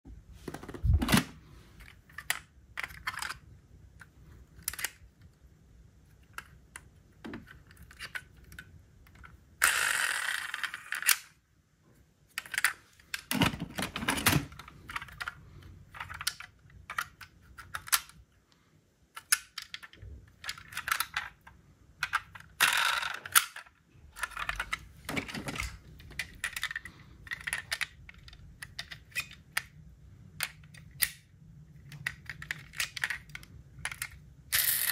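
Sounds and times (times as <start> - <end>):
toy cars clicking and clacking: 22.0 - 29.6, 31.9 - 34.9.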